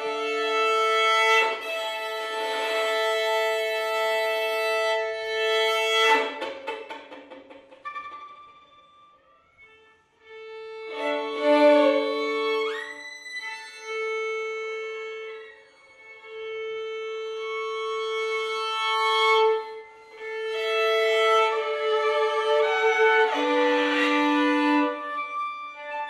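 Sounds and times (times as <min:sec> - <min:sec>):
violins playing slow music: 0:00.0 - 0:06.5, 0:07.9 - 0:26.0.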